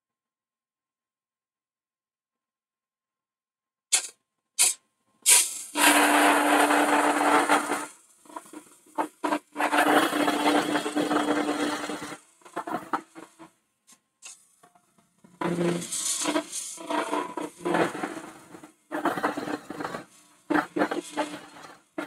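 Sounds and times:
lathe tool cutting wood: 0:05.3 - 0:13.5, 0:15.4 - 0:21.8.

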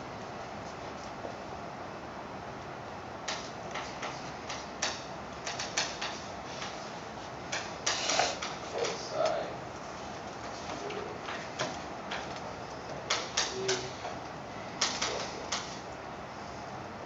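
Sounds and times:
steady background hum: 0:00.0 - 0:17.0
chalk tapping and scratching: 0:03.3 - 0:09.0.

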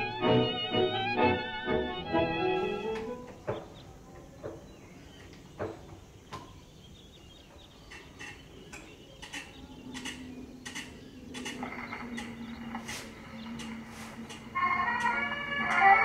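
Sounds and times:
gramophone winding clicks: 0:09.2 - 0:12.9, 0:13.5 - 0:16.0.

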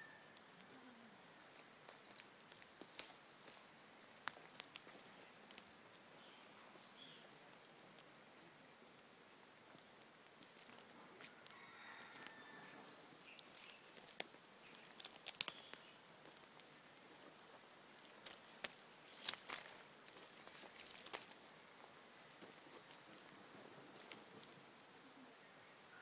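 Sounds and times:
faint bird chirps: 0:00.0 - 0:01.6, 0:11.6 - 0:16.1
footsteps on twigs and leaves: 0:01.4 - 0:05.7, 0:09.8 - 0:21.4.

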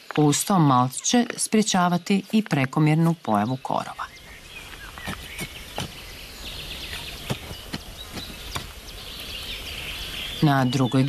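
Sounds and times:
trowel scraping soil: 0:04.6 - 0:06.1.

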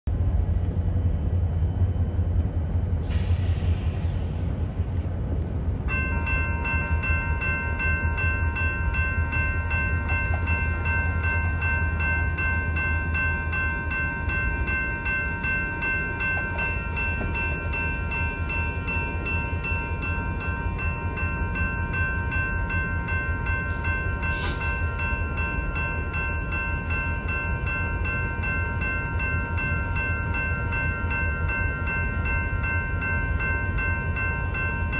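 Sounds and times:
steady low rumble: 0:00.1 - 0:34.9
air brakes hissing: 0:03.0 - 0:05.0, 0:24.2 - 0:24.9
railroad crossing bell ringing: 0:05.8 - 0:34.9
brief hiss: 0:24.3 - 0:24.6.

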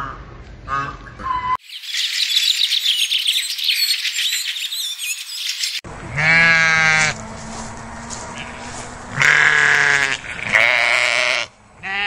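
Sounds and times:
high-pitched chirping and twittering: 0:01.4 - 0:05.8
sheep bleating: 0:06.0 - 0:07.2, 0:08.3 - 0:12.0.

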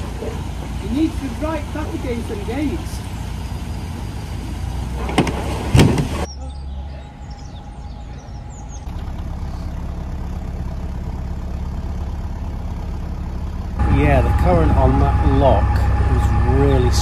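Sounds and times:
diesel engine humming: 0:00.0 - 0:17.0
faint high chirps: 0:06.3 - 0:10.0.

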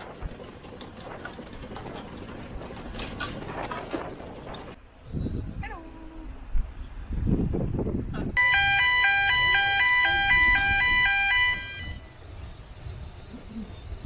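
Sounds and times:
wind rumbling on microphone: 0:00.0 - 0:08.4
two-tone electronic warning alarm: 0:08.4 - 0:12.3.

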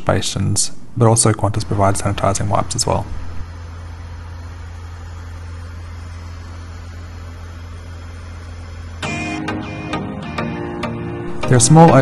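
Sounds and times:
propeller drone in aircraft cabin: 0:01.6 - 0:10.6.

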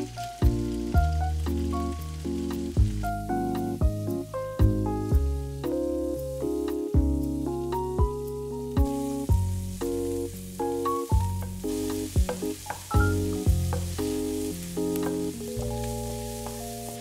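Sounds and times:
background music of single notes: 0:00.0 - 0:17.0
food sizzling in a frying pan: 0:00.0 - 0:17.0
wooden spatula stirring vegetables: 0:08.8 - 0:17.0.

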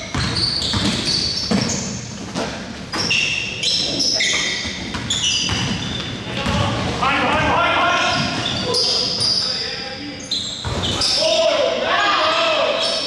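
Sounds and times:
sneakers squeaking on court: 0:00.0 - 0:11.4.

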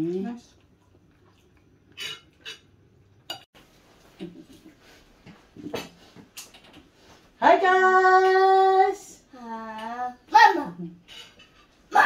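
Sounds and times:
cutlery clinking on plates: 0:01.9 - 0:02.7, 0:11.0 - 0:11.8.

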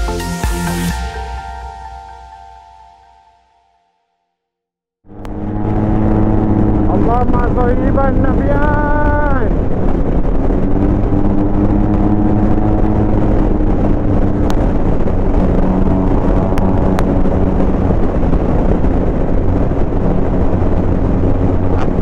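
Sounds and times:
motorcycle engine cruising: 0:05.0 - 0:22.0
wind noise on microphone: 0:05.1 - 0:22.0.

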